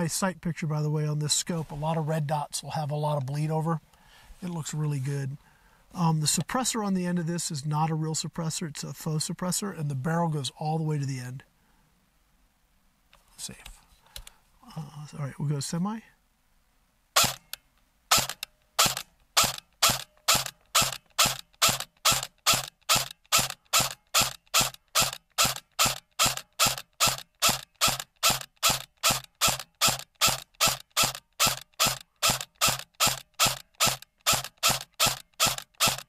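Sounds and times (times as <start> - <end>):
electric bb rifle shots: 18.1 - 36.0.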